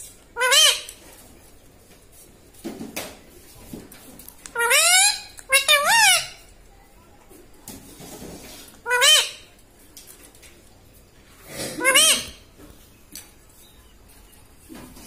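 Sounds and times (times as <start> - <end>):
parakeet shrill calls: 0.4 - 0.9, 4.6 - 6.4, 8.8 - 9.5, 11.8 - 12.4.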